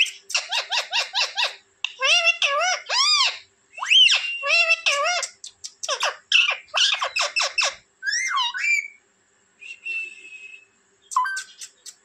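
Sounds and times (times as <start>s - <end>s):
parakeet squawking: 0.0s - 9.0s
thin whistled note: 9.6s - 11.8s.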